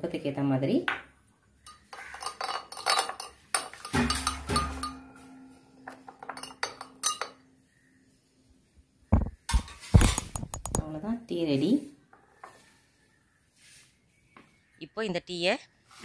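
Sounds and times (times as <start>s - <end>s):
spoon clinking against glass: 1.7s - 5.2s, 5.9s - 7.5s
knocks: 9.1s - 10.8s.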